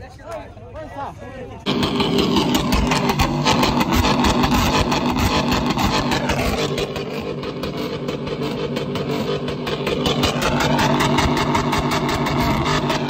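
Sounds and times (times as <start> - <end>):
truck engine revving loud exhaust: 1.7 - 13.0.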